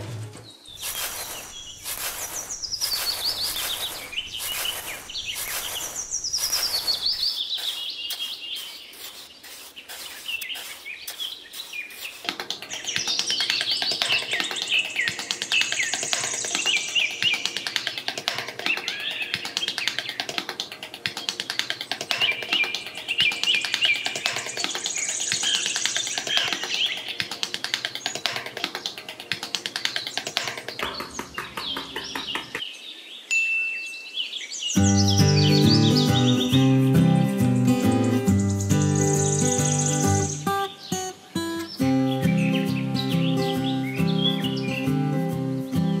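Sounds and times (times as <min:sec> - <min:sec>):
birds chirping and trilling: 0:00.4 - 0:46.0
sand being scooped: 0:00.7 - 0:20.2, 0:20.9 - 0:30.7, 0:34.8 - 0:41.0.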